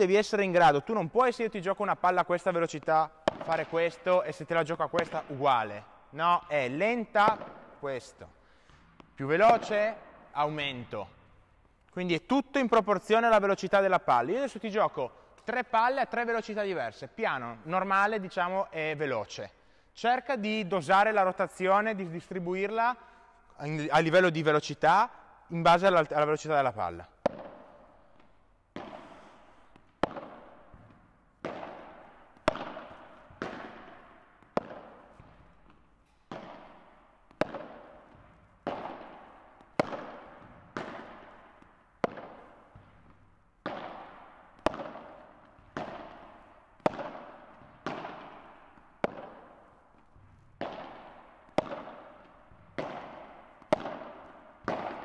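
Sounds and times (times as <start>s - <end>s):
ball popping off racket: 3.2s - 3.8s, 27.2s - 55.0s.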